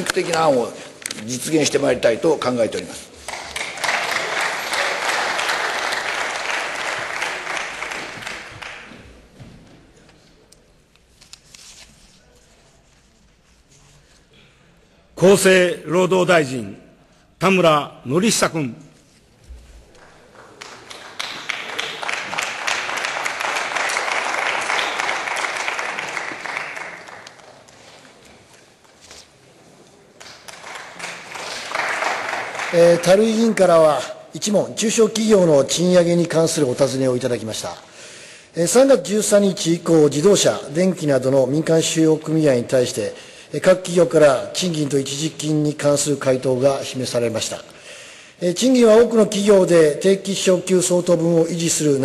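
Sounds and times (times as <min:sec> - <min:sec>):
audience applause: 0:03.2 - 0:09.3, 0:20.0 - 0:27.9, 0:30.2 - 0:33.6.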